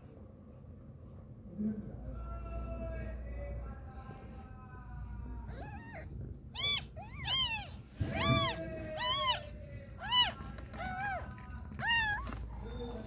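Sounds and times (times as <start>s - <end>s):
kittens mewing: 5.4s - 12.6s.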